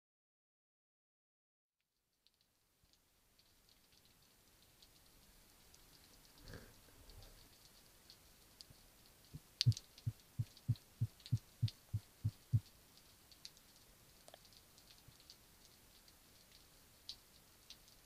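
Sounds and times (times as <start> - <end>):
faint scattered crackle: 1.8 - 18.0
low underwater pulses: 9.4 - 12.6.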